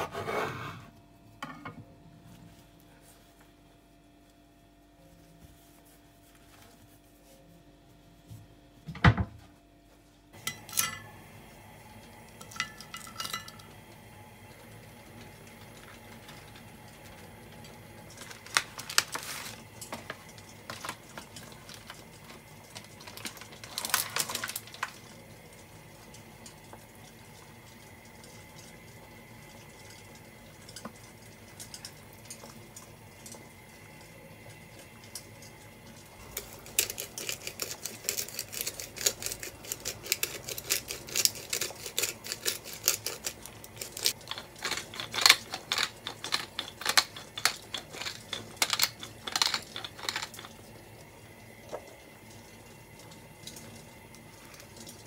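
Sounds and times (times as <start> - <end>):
pepper mill grinding: 36.2 - 50.7.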